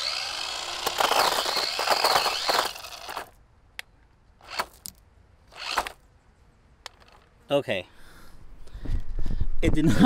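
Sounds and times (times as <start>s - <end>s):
small electric motor whining: 0.0s - 3.4s, 4.4s - 4.8s, 5.5s - 6.0s.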